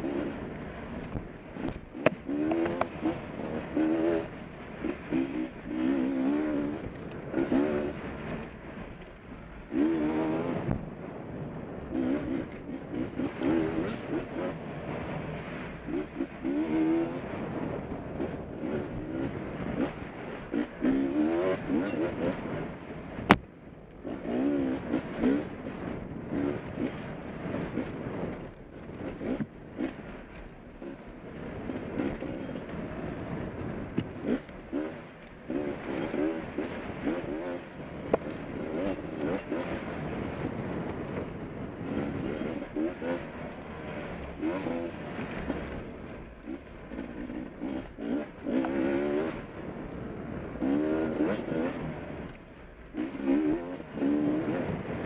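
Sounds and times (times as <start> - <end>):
dirt bike engine revving: 0.0 - 8.9, 9.5 - 55.0.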